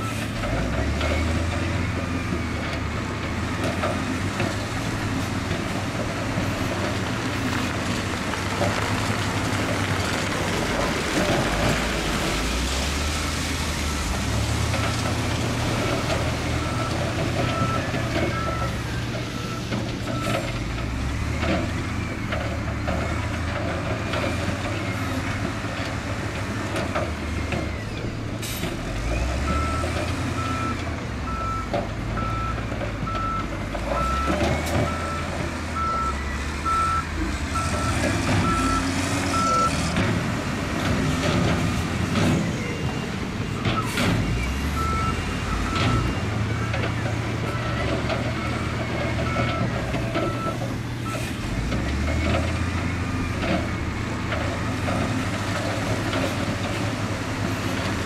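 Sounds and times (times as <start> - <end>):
diesel engine working: 0.0 - 58.0
reversing alarm beeping: 16.6 - 20.5, 29.5 - 40.0, 43.6 - 51.4.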